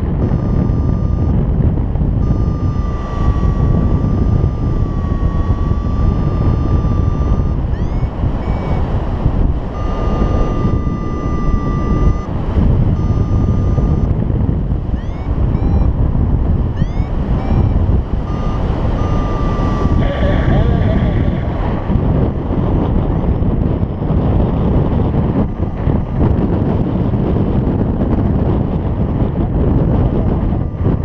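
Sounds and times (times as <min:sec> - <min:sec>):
variometer long beeps: 0:00.0 - 0:14.2, 0:14.9 - 0:16.1, 0:16.7 - 0:21.5, 0:29.7 - 0:31.0
wind rushing over microphone: 0:00.0 - 0:31.0
short rising chirps: 0:02.2 - 0:08.8, 0:09.7 - 0:12.3, 0:15.0 - 0:15.9, 0:16.8 - 0:20.1.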